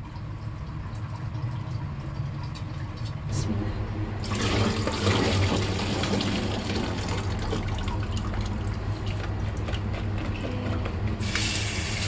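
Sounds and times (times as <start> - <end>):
constant low hum: 0.0 - 12.0
water running from a tap: 11.2 - 12.0.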